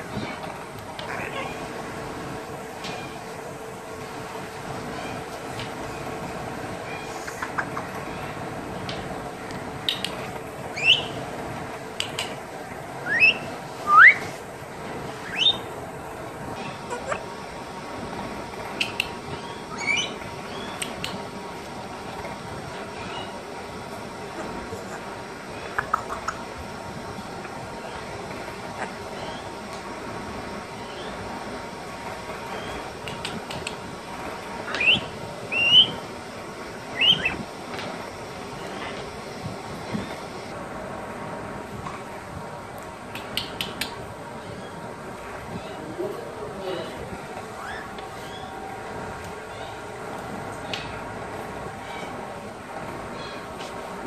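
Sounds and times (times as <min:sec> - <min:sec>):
sharp clicks: 0:09.5 - 0:10.4, 0:12.0 - 0:12.4
parrot whistling upward: 0:10.8 - 0:11.2, 0:13.0 - 0:14.3, 0:15.2 - 0:15.7, 0:19.5 - 0:20.7, 0:34.7 - 0:36.0, 0:37.0 - 0:37.4.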